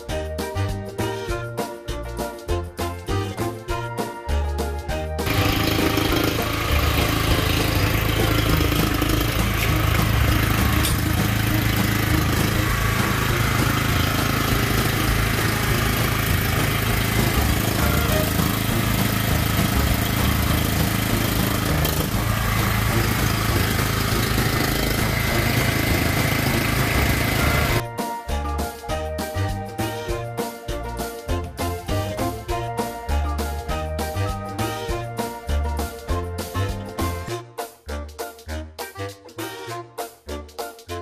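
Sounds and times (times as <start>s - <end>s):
generator engine running: 5.2s - 27.8s.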